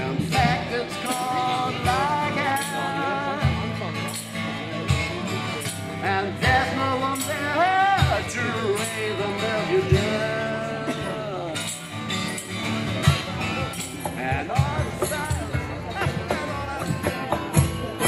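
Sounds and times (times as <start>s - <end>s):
cajon thumping: 0.0s - 0.9s, 13.0s - 18.0s
acoustic guitar strummed: 0.0s - 18.0s
jingling percussion: 0.0s - 18.0s
man singing: 0.0s - 18.0s.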